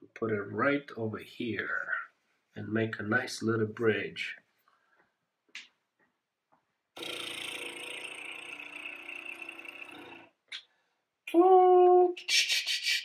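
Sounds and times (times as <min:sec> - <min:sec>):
small engine whir: 0:07.0 - 0:10.4.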